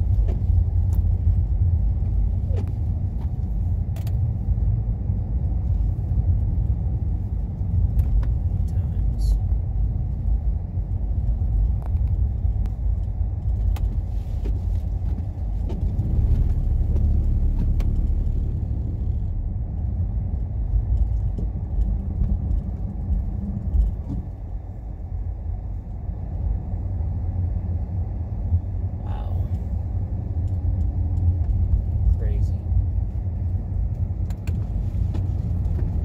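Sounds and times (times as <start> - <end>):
low road rumble inside car: 0.0 - 36.0
faint clicks and rattles: 9.4 - 24.5.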